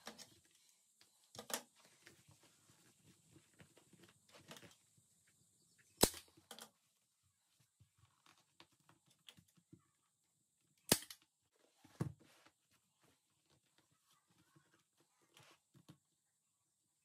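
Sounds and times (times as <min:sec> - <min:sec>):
staple gun firing: 0:06.0 - 0:06.3, 0:10.9 - 0:11.2.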